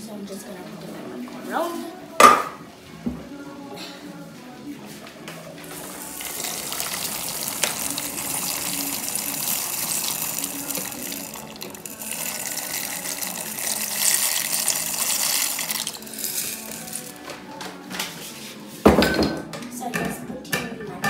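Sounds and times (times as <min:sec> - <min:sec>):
pasta pouring into boiling water: 0:05.6 - 0:17.2.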